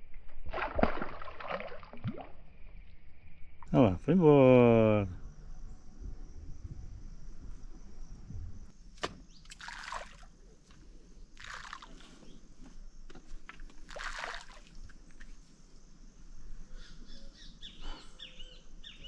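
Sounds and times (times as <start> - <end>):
crickets droning: 1.5 - 19.0
bird chirps: 16.7 - 19.0.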